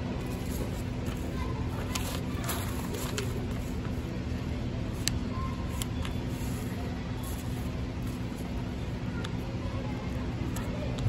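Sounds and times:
paper being folded and creased: 0.2s - 8.6s.

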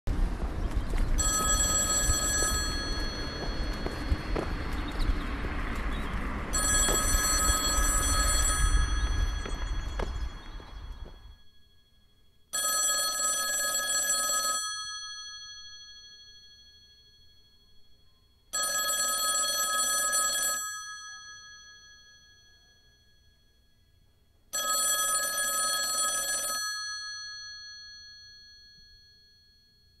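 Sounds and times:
telephone ringing: 1.2s - 4.6s, 6.5s - 11.7s, 12.5s - 17.2s, 18.5s - 22.6s, 24.5s - 30.0s.

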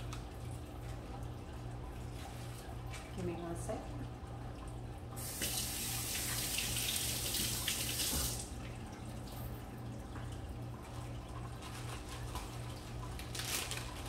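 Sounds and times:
kitchen faucet running: 4.8s - 9.2s.

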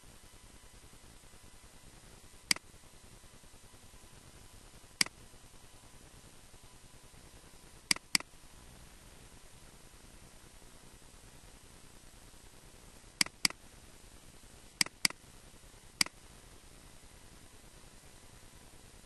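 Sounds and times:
faint steady hiss: 0.0s - 19.0s
mouse button clicking: 7.9s - 8.3s, 13.2s - 13.6s, 14.8s - 15.2s.

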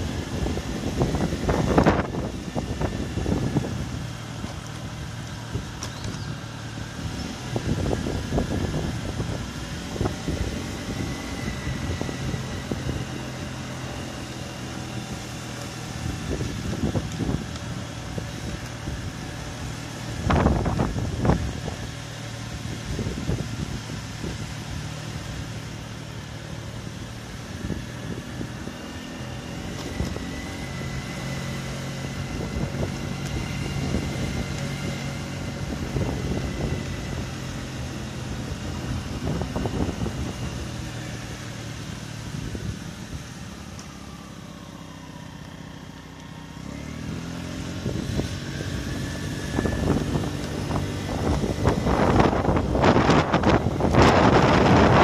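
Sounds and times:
wind buffeting microphone: 0.0s - 13.4s, 16.0s - 24.6s, 31.8s - 41.3s, 47.8s - 55.0s
vehicle engine driving: 0.0s - 55.0s.

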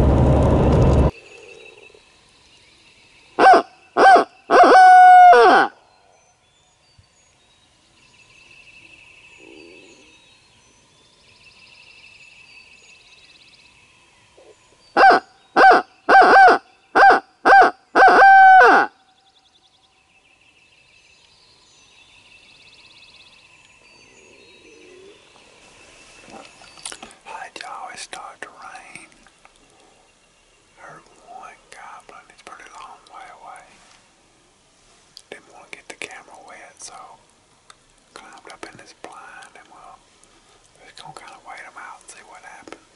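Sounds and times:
owl call hooting: 3.4s - 5.8s, 14.4s - 19.0s.

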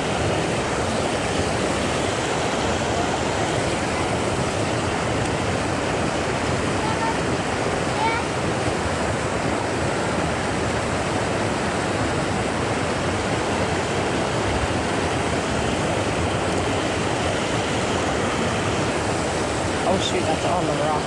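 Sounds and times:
mountain stream rushing over boulders: 0.0s - 21.0s.

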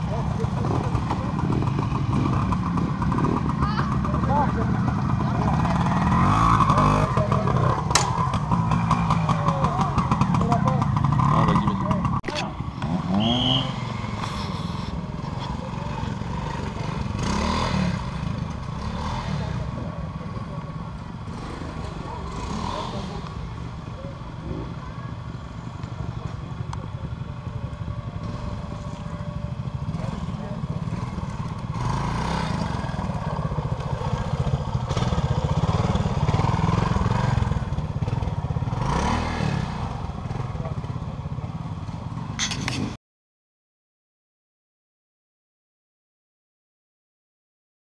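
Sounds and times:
motorcycle engine revving: 0.0s - 43.0s.

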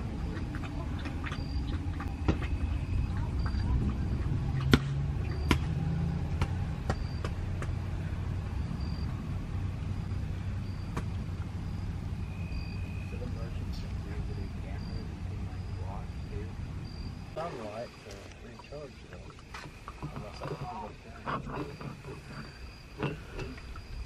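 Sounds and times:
low steady rumble: 0.0s - 24.0s
water drips ticking: 18.1s - 20.9s.

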